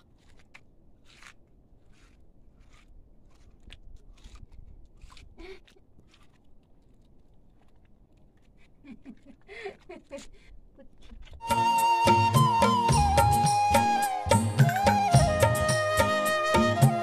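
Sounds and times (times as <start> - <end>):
hand smearing wet mud plaster: 0.0 - 10.3.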